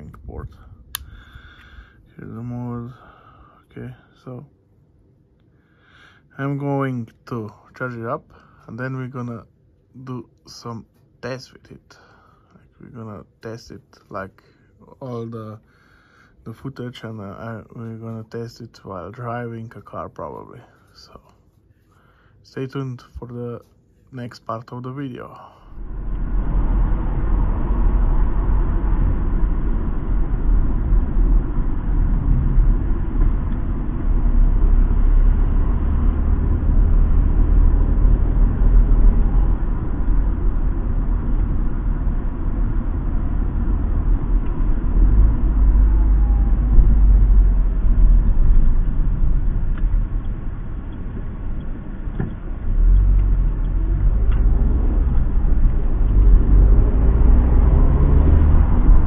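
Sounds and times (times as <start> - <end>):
road noise: 24.3 - 59.0
car engine rumble: 24.6 - 59.0.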